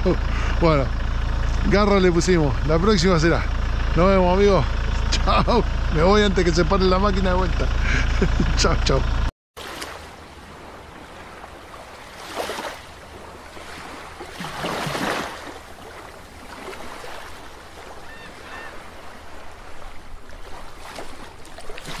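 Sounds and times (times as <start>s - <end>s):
rushing water and surf: 9.6s - 22.0s.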